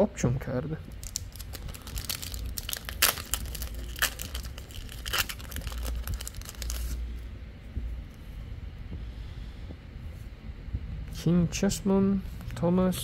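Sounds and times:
wrapper tearing and crinkling: 0:01.0 - 0:07.0.

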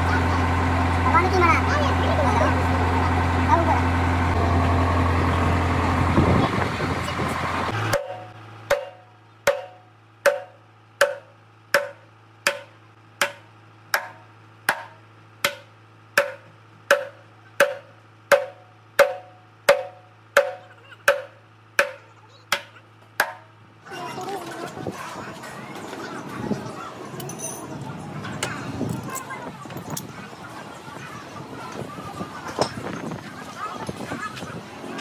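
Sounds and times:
hammer striking steel drum: 0:07.9 - 0:23.4.

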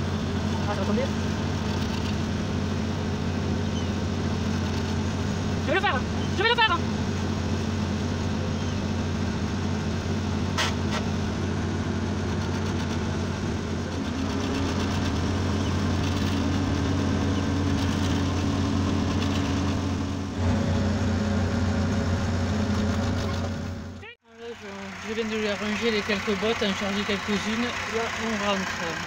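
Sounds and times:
machinery engine running: 0:00.0 - 0:29.0.

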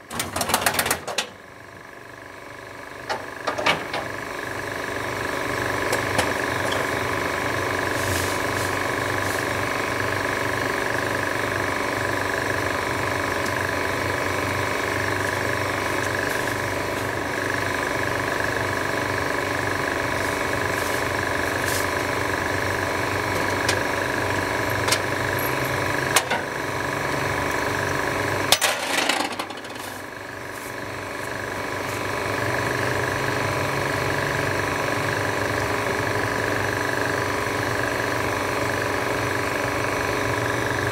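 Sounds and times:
engine running: 0:00.0 - 0:40.9
sharp clicks and knocks: 0:03.1 - 0:04.1.

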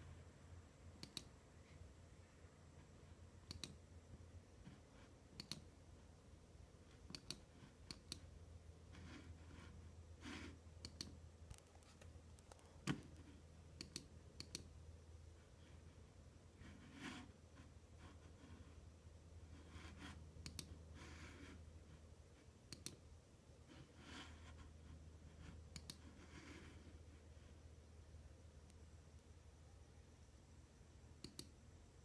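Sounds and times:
low steady hum: 0:00.0 - 0:32.0
computer mouse clicks: 0:01.0 - 0:01.4, 0:03.4 - 0:03.8, 0:04.7 - 0:05.8, 0:06.9 - 0:08.4, 0:10.8 - 0:14.8, 0:19.9 - 0:21.5, 0:22.7 - 0:23.1, 0:25.4 - 0:26.6, 0:31.2 - 0:31.6.

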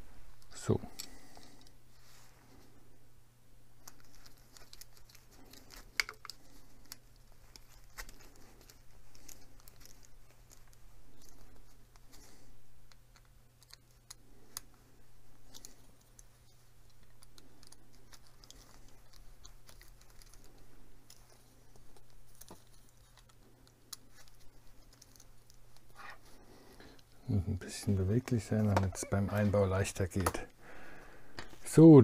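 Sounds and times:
plastic parts handled: 0:03.7 - 0:27.2.

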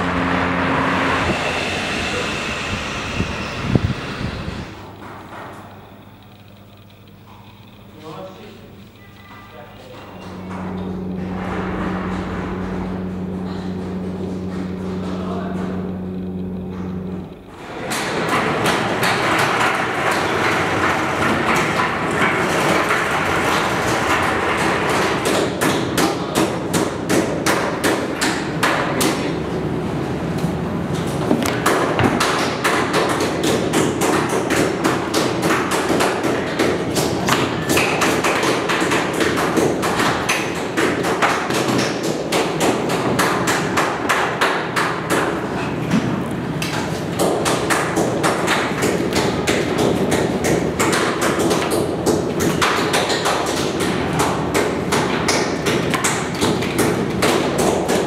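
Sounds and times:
steady rushing noise: 0:00.0 - 0:07.8
low steady hum: 0:00.0 - 0:19.0.

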